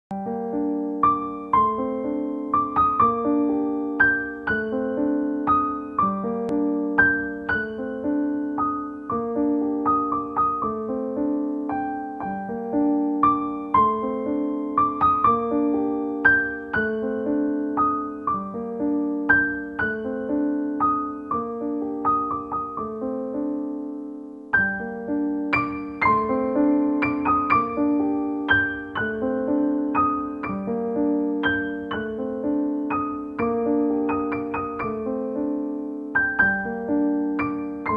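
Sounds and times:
piano music: 0.1s - 37.9s.

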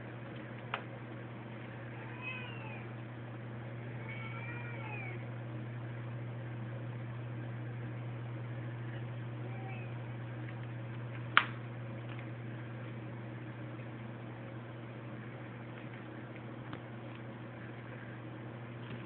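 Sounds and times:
steady low hum: 0.0s - 19.0s
cat meowing: 1.9s - 3.0s, 3.8s - 5.3s, 9.4s - 10.0s.

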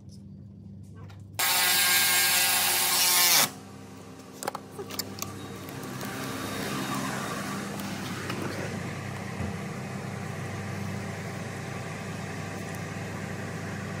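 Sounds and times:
diesel truck engine idling: 5.1s - 14.0s.

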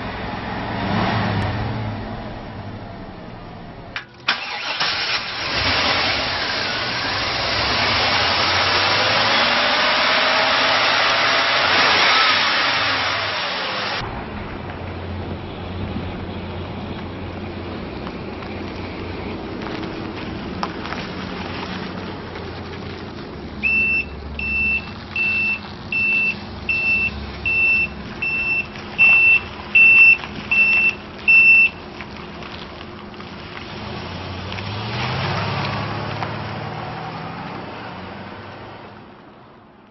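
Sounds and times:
truck engine running: 1.4s - 34.8s
backup alarm beeping: 23.6s - 31.8s.

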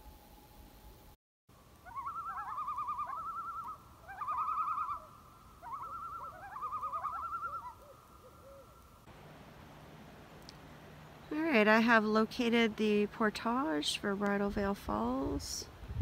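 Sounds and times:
loons giving tremolo calls: 1.8s - 8.9s.

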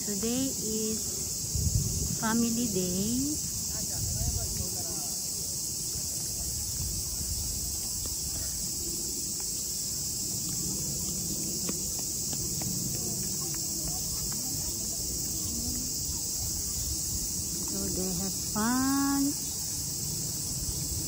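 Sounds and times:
cicadas droning: 0.0s - 21.0s
faint distant voices: 3.2s - 19.9s.

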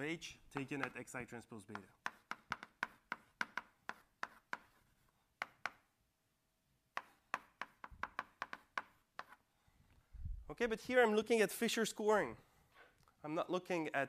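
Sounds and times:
chalk tapping on blackboard: 0.5s - 5.9s, 6.9s - 9.4s.

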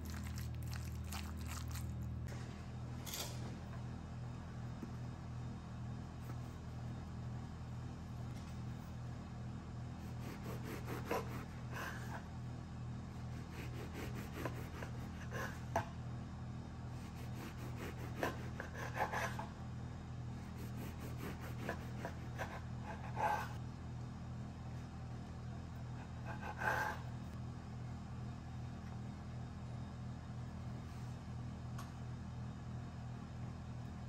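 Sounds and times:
steady low hum: 0.0s - 34.0s
bread knife sawing through loaf: 10.0s - 12.3s, 13.3s - 15.8s, 17.0s - 19.5s, 20.4s - 23.6s, 26.0s - 27.2s.

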